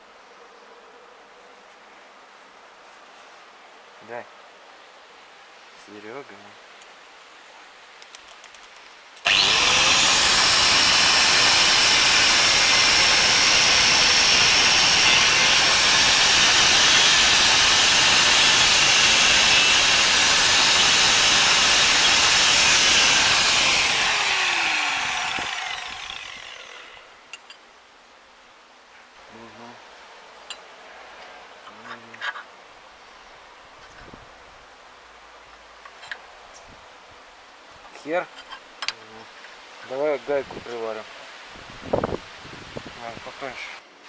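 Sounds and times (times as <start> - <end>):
angle grinder grinding metal: 9.3 - 27.2.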